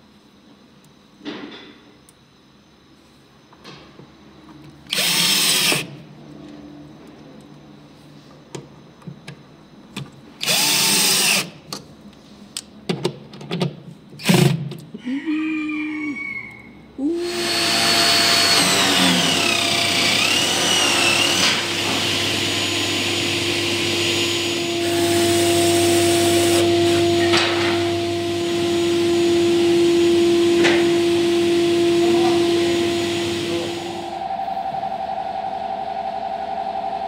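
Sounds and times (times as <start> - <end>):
workshop motor humming: 17.0 - 37.0
wavering high whine: 17.7 - 37.0.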